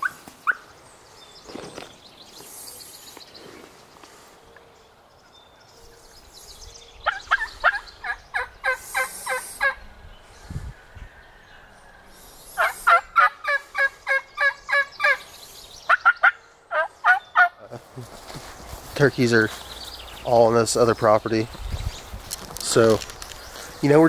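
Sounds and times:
turkey calling: 0.0s - 0.7s, 7.0s - 9.8s, 12.5s - 17.7s.

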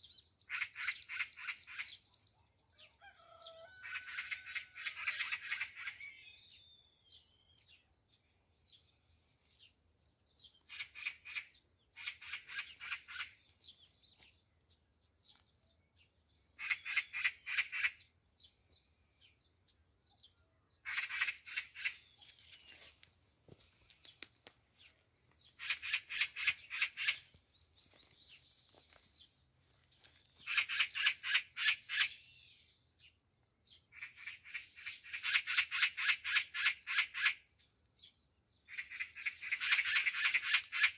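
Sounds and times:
magpies alarm chatter: 0.4s - 2.4s, 3.2s - 6.7s, 10.6s - 13.5s, 16.6s - 18.1s, 20.8s - 22.9s, 25.4s - 27.4s, 30.4s - 32.3s, 33.9s - 37.7s, 38.6s - 40.9s.

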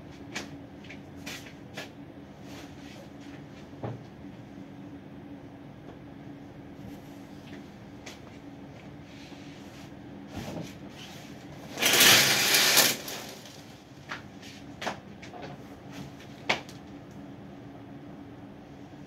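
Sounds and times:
steady low hum: 0.0s - 12.2s, 13.0s - 19.0s
shower curtain rings scraping rail: 11.7s - 13.6s.

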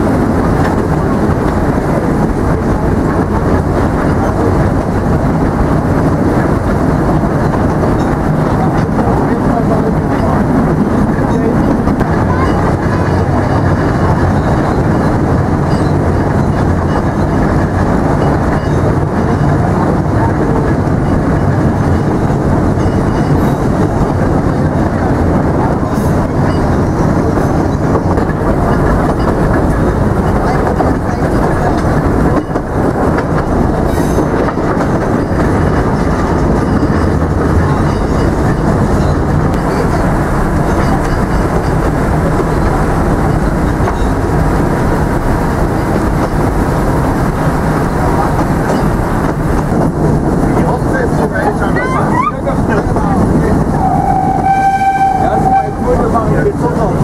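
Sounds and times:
train wheels running on track: 0.0s - 57.0s.

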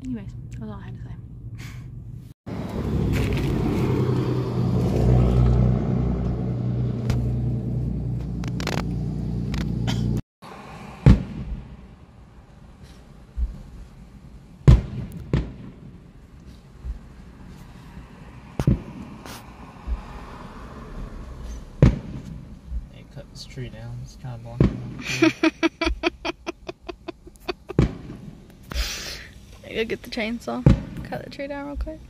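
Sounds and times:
fireworks banging: 14.6s - 16.2s, 24.5s - 25.2s, 27.6s - 28.7s, 30.5s - 31.9s.

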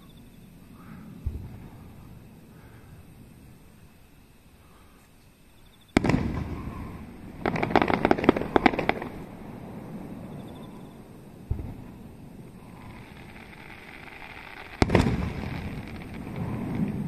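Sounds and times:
rapid crackling pops: 6.0s - 9.3s.

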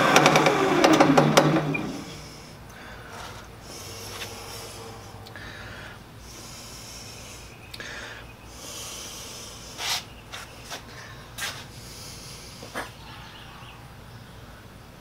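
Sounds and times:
steady low hum: 0.0s - 15.0s
man breathing: 2.0s - 13.6s.

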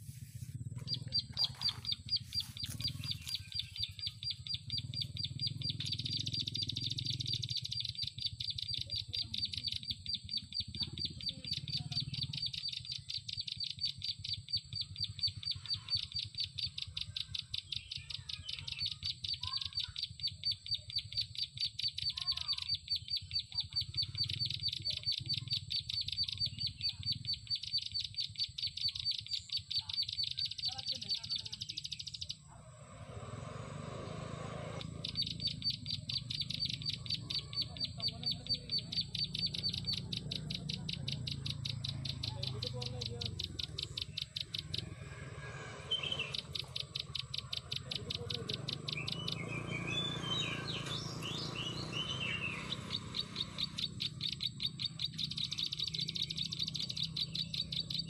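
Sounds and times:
bird chattering call: 0.0s - 58.0s.

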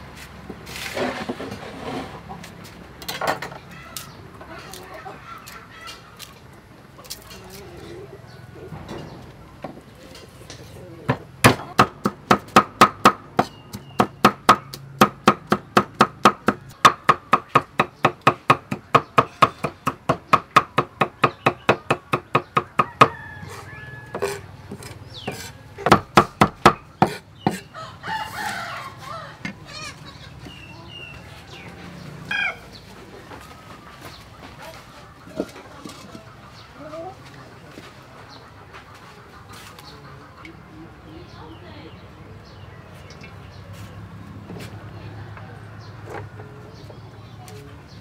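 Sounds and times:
birds calling: 1.9s - 44.8s
cleaver chopping on wooden block: 11.1s - 23.2s, 24.1s - 27.6s.

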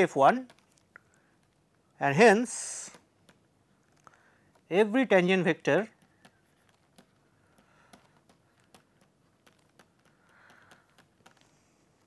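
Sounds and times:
stylus tapping on pen tablet: 5.9s - 11.6s.

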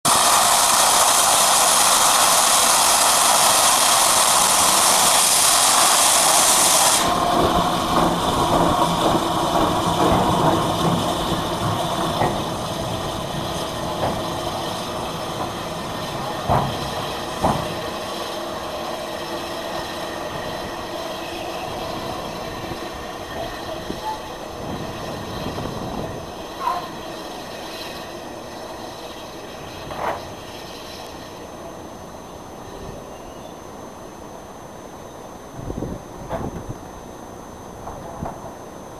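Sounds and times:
steam hissing: 0.0s - 34.4s
locomotive exhaust beats: 0.1s - 33.1s.

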